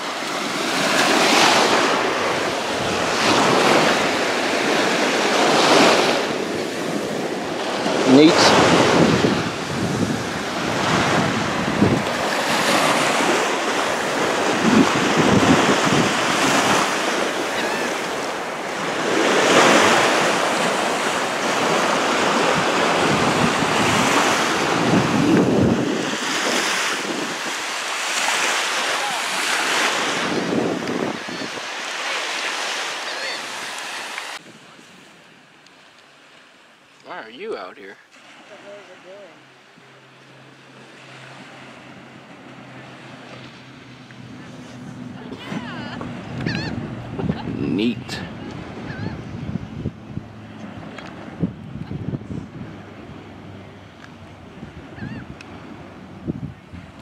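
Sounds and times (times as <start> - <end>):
small waves washing on shore: 0.0 - 57.0
wind buffeting microphone: 1.0 - 27.8, 30.0 - 31.9, 41.9 - 57.0.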